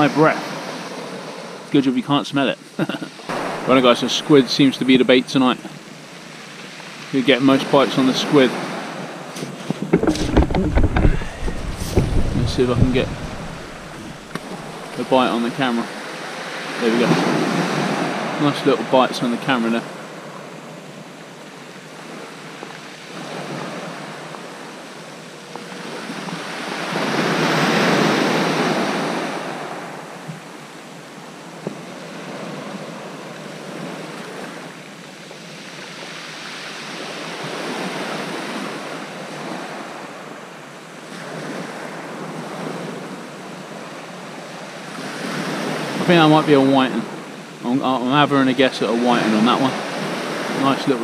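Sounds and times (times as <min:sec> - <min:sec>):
waves breaking on shingle beach: 0:03.0 - 0:20.0, 0:21.8 - 0:30.0, 0:41.0 - 0:51.0.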